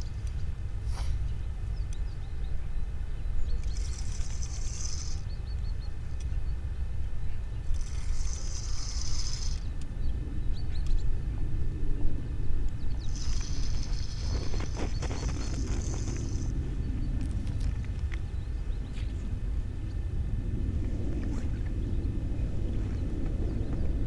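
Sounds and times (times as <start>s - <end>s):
steady low rumble: 0.0s - 24.0s
fishing reel whirring: 7.8s - 9.7s.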